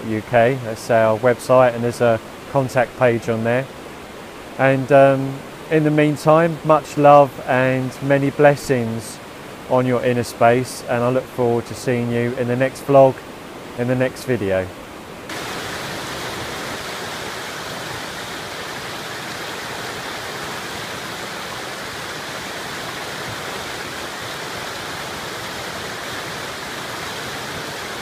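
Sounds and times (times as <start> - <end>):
river rushing over rapids: 0.0 - 28.0
small waterfall spilling: 15.3 - 28.0.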